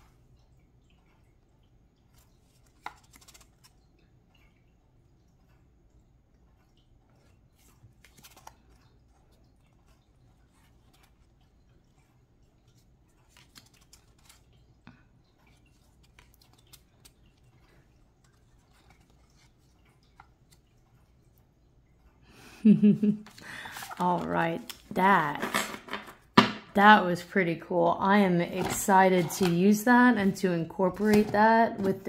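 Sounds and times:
cards clicking and rustling: 0:02.1 - 0:03.8, 0:07.2 - 0:08.9, 0:13.2 - 0:14.6, 0:15.5 - 0:20.6, 0:23.2 - 0:26.6, 0:28.5 - 0:32.0.

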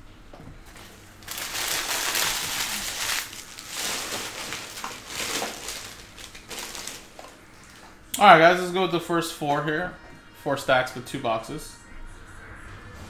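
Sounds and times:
cards and packaging crinkling: 0:00.7 - 0:08.0.

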